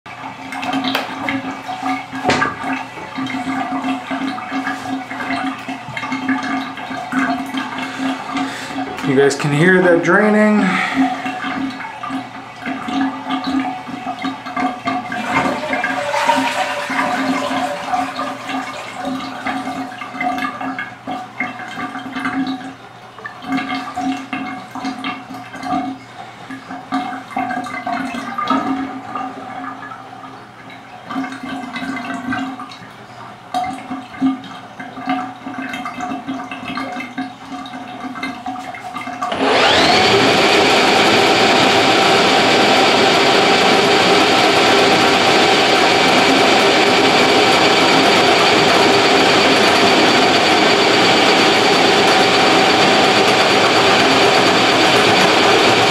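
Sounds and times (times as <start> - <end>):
water gurgling down drain: 0.1 - 29.9
drain snake motor whining: 15.2 - 19.9, 39.3 - 55.9.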